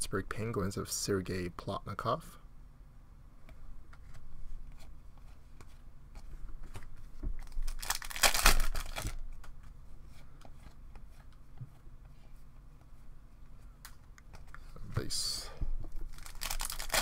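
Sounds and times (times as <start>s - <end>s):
wrapper tearing and crinkling: 7.4s - 9.2s, 16.0s - 17.0s.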